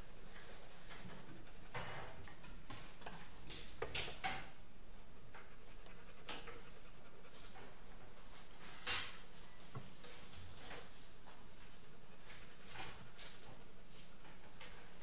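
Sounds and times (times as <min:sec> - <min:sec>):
pencil scratching on paper: 0:00.0 - 0:02.6, 0:05.1 - 0:08.7, 0:10.7 - 0:14.2.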